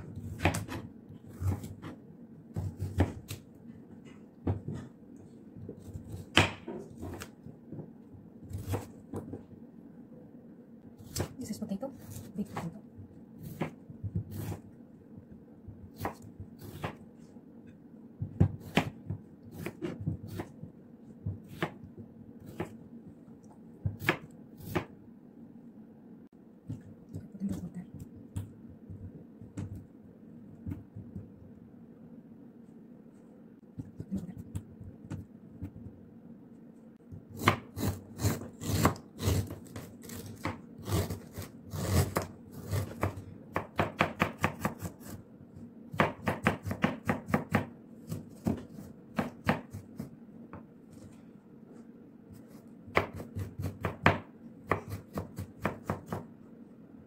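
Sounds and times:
knife chopping on cutting board: 0.1 - 3.4, 5.7 - 7.9, 13.4 - 14.7, 15.8 - 17.1, 18.2 - 20.6, 21.2 - 22.8, 23.8 - 25.0, 37.3 - 45.2, 45.9 - 50.1, 52.3 - 56.3.

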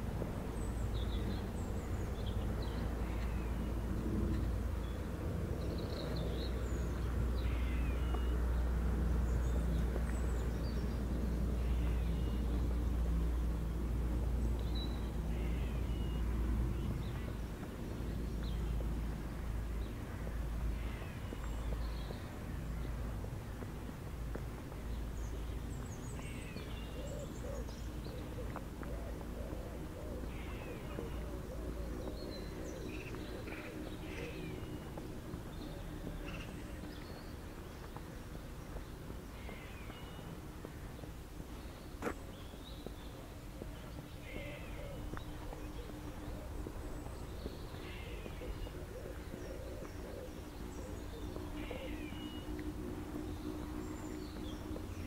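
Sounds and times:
birds singing and calling: 0.1 - 55.0.

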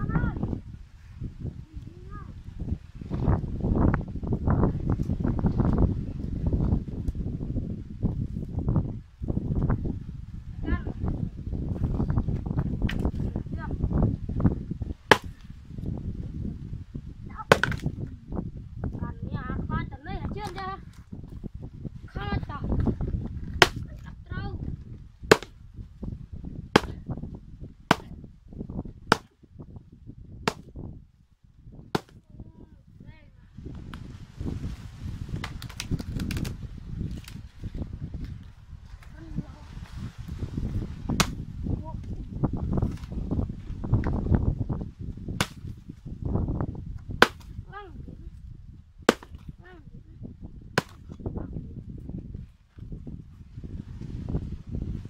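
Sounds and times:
knife chopping palm frond: 15.1 - 15.4, 17.5 - 17.9, 23.6 - 23.8, 25.3 - 25.5, 26.8 - 27.0, 30.5 - 30.7, 32.0 - 32.2, 35.4 - 36.5, 41.2 - 41.4, 45.4 - 45.7, 47.2 - 47.5, 49.1 - 49.4, 50.8 - 51.1
machete striking a stalk: 15.1 - 15.4, 17.5 - 17.9, 23.6 - 23.8, 25.3 - 25.5, 26.8 - 27.0, 30.5 - 30.7, 32.0 - 32.2, 41.2 - 41.4, 45.4 - 45.7, 47.2 - 47.6, 49.1 - 49.4, 50.8 - 51.1
dry fronds rustling: 33.6 - 43.9.

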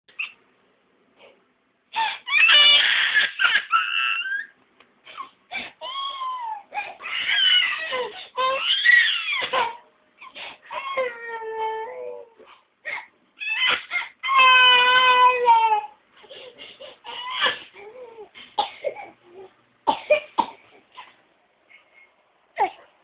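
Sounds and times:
toddler crying: 2.1 - 4.5, 5.8 - 9.8, 10.7 - 12.4, 13.4 - 16.0, 17.1 - 18.3.

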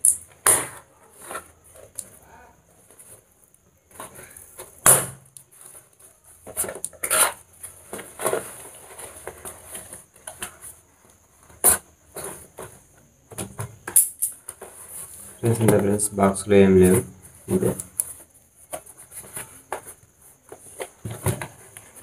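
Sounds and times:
cardboard flaps and tape rustling: 2.7 - 13.9, 16.8 - 22.0.

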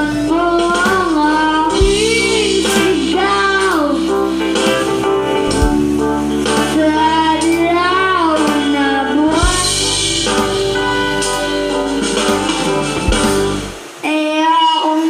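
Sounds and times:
karaoke backing track: 0.0 - 15.0
person singing long notes: 6.7 - 10.2.

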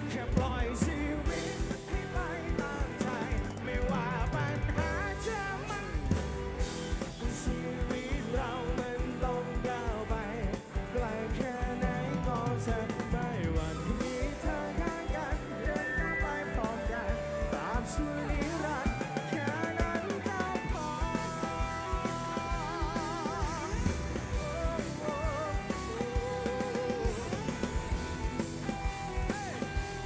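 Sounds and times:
person singing: 0.0 - 30.0
rock band playing live: 0.0 - 30.0.

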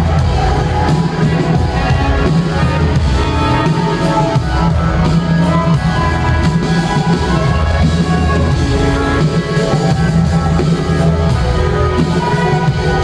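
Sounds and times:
loud electronic music: 0.0 - 13.0.

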